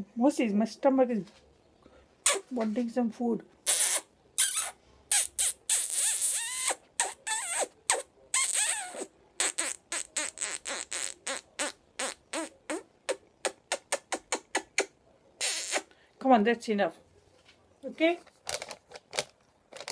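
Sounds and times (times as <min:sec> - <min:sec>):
wet kissing smacks: 0:02.2 - 0:02.5, 0:03.6 - 0:15.9
parrot squeaky chirps: 0:03.6 - 0:12.5.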